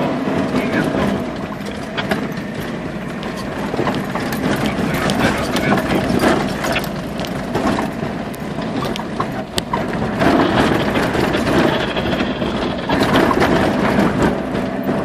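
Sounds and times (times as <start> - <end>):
road noise rumble: 0.0 - 15.0
vehicle engine running: 0.0 - 15.0
body knocks and rattles: 0.3 - 15.0.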